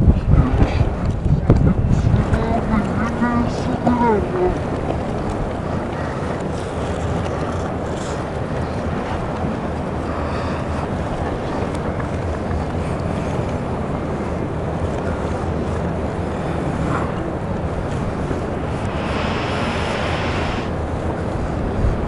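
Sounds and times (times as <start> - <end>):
wind buffeting microphone: 0.0 - 22.0
high hiss: 18.2 - 20.8.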